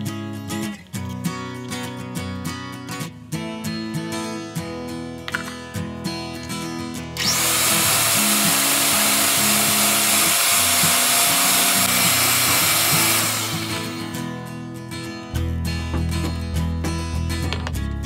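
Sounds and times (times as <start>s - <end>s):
electric hand mixer whirring: 7.1s - 14.3s.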